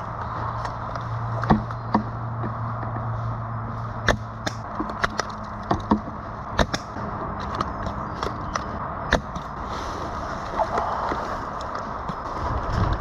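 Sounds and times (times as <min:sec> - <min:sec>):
sharp cracks and clicks: 0:04.0 - 0:09.5.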